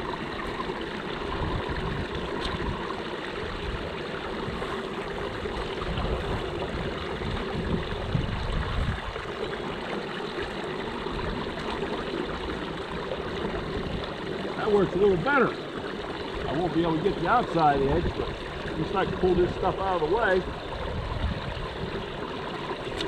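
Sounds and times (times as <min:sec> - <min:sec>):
water rushing and gurgling into pipe: 0:00.0 - 0:23.0.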